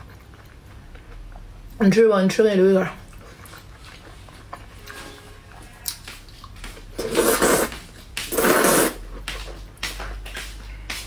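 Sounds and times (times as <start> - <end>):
wet slurps: 7.0 - 9.1.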